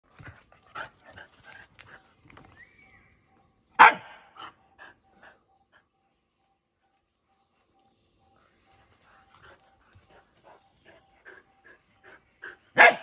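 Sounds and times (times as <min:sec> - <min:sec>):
dogs barking: 0:03.8 - 0:05.4, 0:09.4 - 0:13.0.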